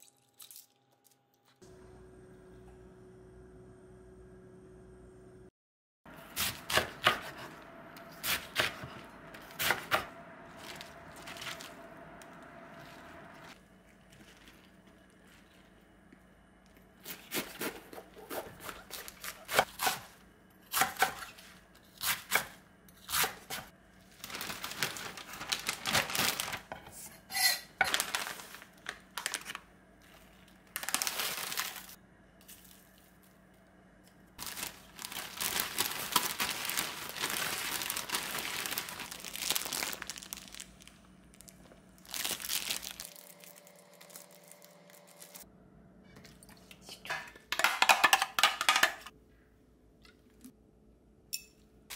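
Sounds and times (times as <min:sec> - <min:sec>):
knife chopping cabbage on board: 0:06.4 - 0:07.5, 0:20.7 - 0:21.4
plastic bag crinkling: 0:10.5 - 0:12.1, 0:24.0 - 0:26.8, 0:27.8 - 0:32.0, 0:34.4 - 0:45.4.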